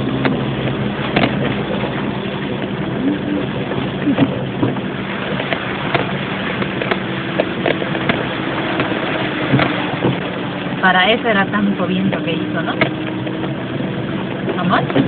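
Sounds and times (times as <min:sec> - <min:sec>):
car engine running: 0:00.0 - 0:15.0
water washing: 0:00.0 - 0:15.0
light ticks and knocks: 0:00.2 - 0:00.4, 0:01.1 - 0:01.6, 0:04.2 - 0:10.3.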